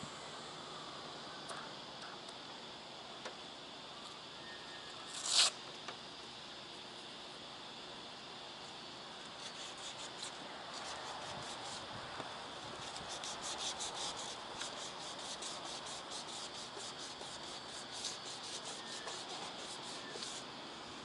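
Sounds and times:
sandpaper rasping: 5.2s - 5.5s, 9.4s - 11.9s, 12.8s - 20.5s.

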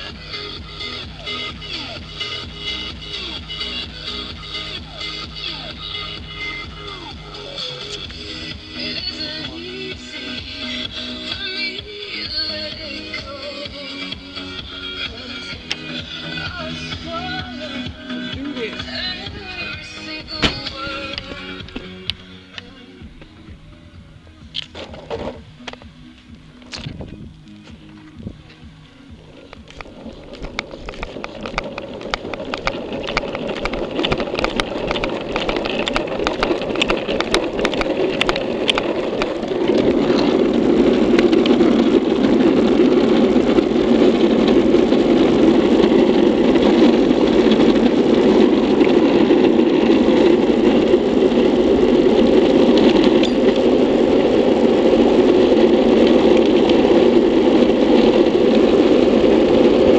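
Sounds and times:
board wheels rolling on asphalt: 0.0s - 59.9s
rapid clicks: 24.5s - 59.9s.

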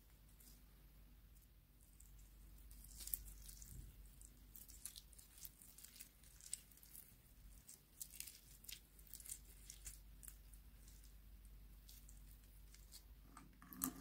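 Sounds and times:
sticky slime crackles and pops: 2.0s - 11.1s.

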